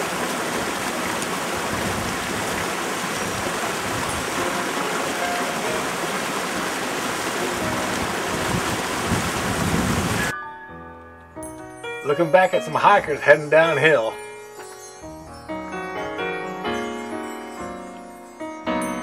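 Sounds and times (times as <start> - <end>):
stream water rushing: 0.0 - 10.3.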